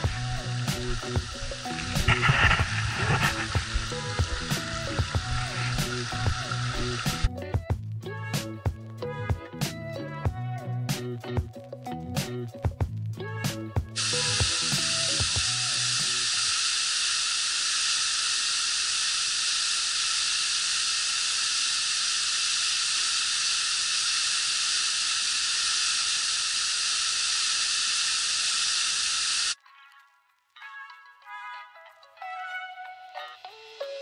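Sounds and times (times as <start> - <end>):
waterfall hissing: 0.0 - 7.3, 14.0 - 29.6
background music: 0.0 - 16.0, 29.6 - 34.0.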